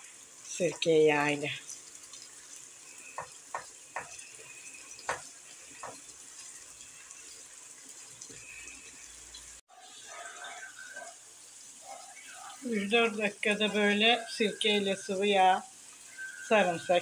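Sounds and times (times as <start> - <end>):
peppers sizzling in a frying pan: 0.0 - 17.0
wooden spoon knocking a pan: 3.2 - 4.2, 5.0 - 6.0.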